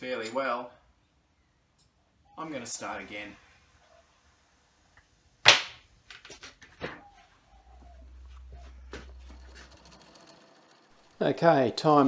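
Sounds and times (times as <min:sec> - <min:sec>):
sharp smack: 0:05.5 - 0:05.8
low rumble of movement: 0:07.4 - 0:11.2.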